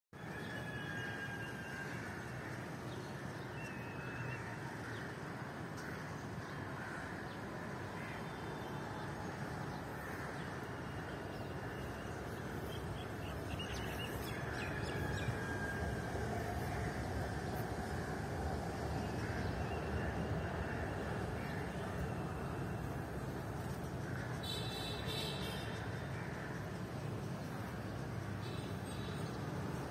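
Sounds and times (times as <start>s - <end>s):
steady background rumble: 11.6s - 24.4s.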